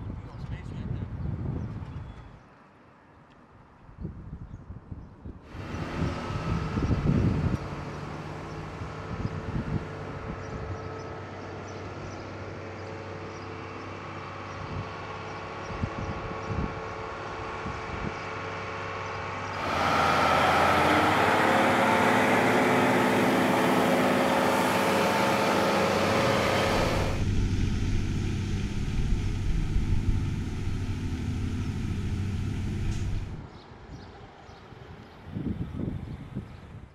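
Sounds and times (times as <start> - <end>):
truck engine running: 5.5 - 15.6, 16.8 - 33.5.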